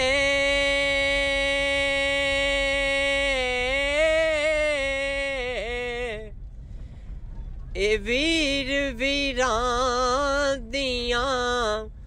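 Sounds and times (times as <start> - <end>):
person singing a long note: 0.0 - 6.3.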